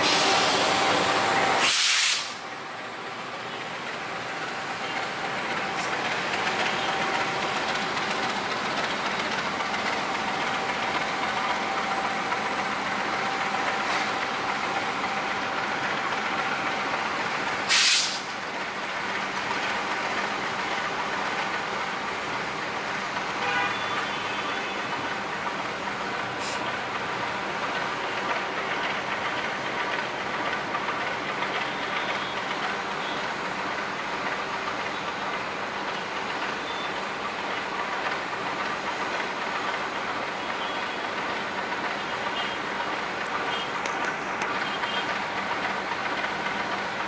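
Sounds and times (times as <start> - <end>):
train wheels rumbling on track: 0.0 - 47.0
short loud hiss: 1.5 - 2.4, 17.7 - 18.3.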